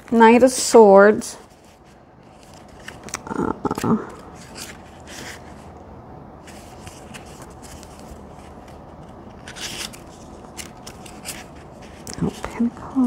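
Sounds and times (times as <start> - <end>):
paper rustle: 1.4 - 5.7, 6.4 - 12.7
paper pages flicking: 6.7 - 12.1.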